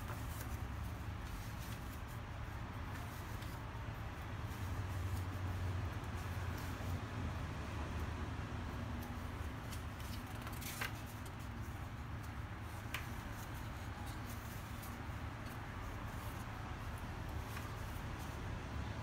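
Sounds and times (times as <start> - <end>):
paper rustling: 0.0 - 7.0, 9.0 - 18.6
crisp page flip: 9.0 - 18.2.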